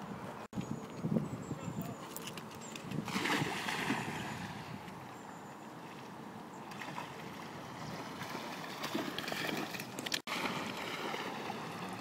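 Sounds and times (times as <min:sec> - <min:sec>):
wind on microphone: 0:00.1 - 0:05.1
dog splashing through water: 0:06.7 - 0:12.0.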